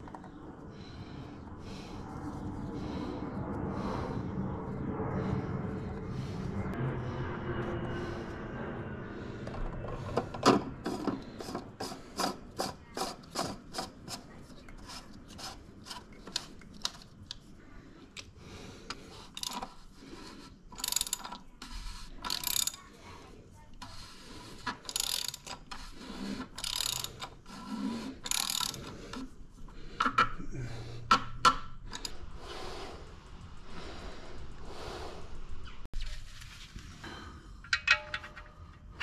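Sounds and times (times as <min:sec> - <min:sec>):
socket ratchet clicking: 0:20.8 - 0:21.4, 0:22.2 - 0:22.8, 0:24.9 - 0:25.8, 0:26.6 - 0:27.4, 0:28.2 - 0:29.0.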